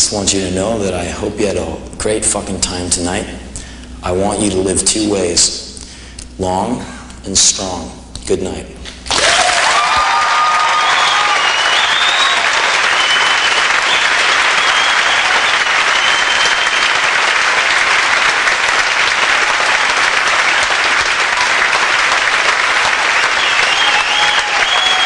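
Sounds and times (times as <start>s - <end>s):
audience applauding: 9.1s - 25.0s.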